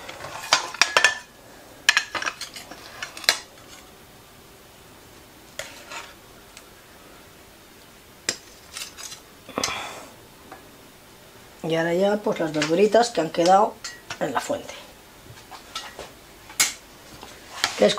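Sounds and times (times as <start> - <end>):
spatula clinking against dishes: 13.4 - 14.3.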